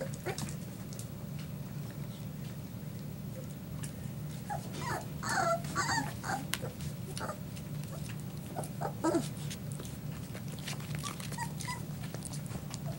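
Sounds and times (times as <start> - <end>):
steady low hum: 0.0 - 12.9
puppy whining yelps: 4.5 - 7.4, 11.0 - 11.9.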